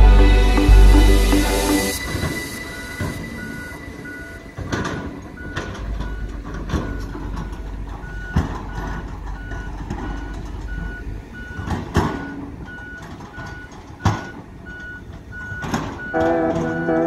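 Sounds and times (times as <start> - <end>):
background music: 0.0 - 6.4
heavy engine running: 0.0 - 17.0
reversing alarm beeping: 0.0 - 17.0.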